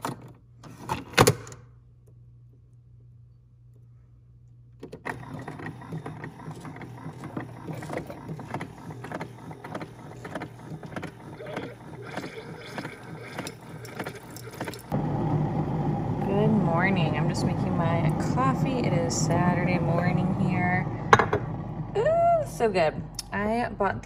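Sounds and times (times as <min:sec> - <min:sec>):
coffee maker pump running: 0:05.0 - 0:22.0
hot water pouring into mug: 0:09.4 - 0:15.0.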